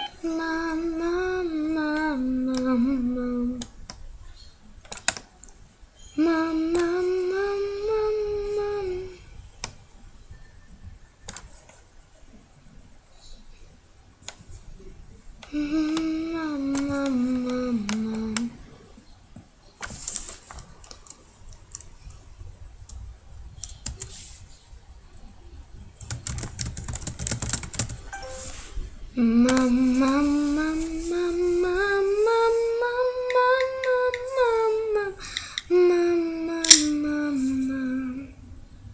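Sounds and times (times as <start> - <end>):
girl humming: 0.0 - 3.8, 6.0 - 9.4, 15.4 - 18.8, 28.2 - 38.5
mobile phone handling clicks: 36.6 - 36.9.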